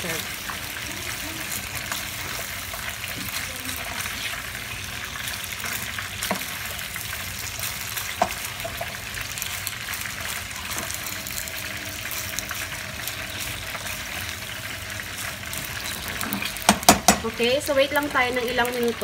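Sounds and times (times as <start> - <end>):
food sizzling in a pan: 0.0 - 19.0
tongs knocking against pan: 16.6 - 17.3.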